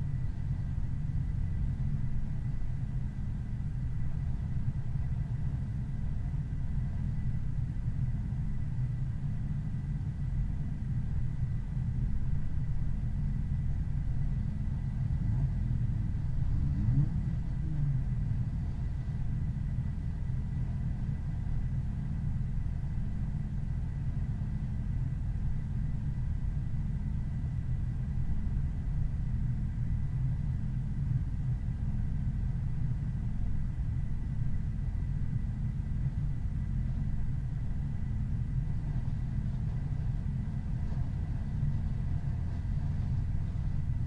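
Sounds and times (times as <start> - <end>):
car engine and road noise: 0.0 - 44.0
faint high-pitched whine: 0.0 - 44.0.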